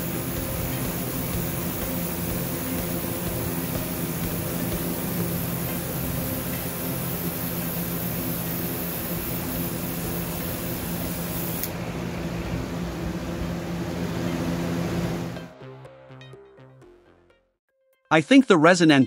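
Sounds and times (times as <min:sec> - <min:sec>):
airbrush hissing: 0:00.0 - 0:11.7
air compressor humming: 0:00.0 - 0:15.6.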